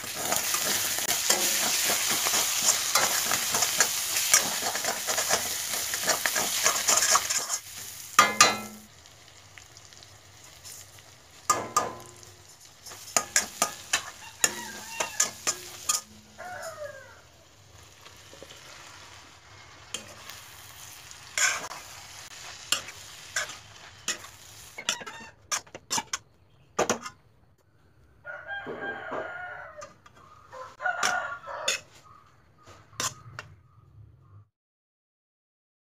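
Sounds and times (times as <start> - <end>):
spatula scraping a wok: 0.0 - 8.9, 10.5 - 17.0, 17.8 - 26.2, 29.8 - 33.4
food sizzling in a wok: 0.0 - 25.6.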